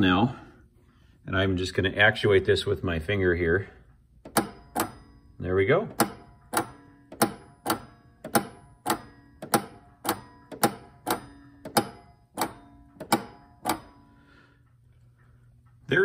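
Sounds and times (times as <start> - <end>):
solenoid metallic clacks: 4.2 - 14.2.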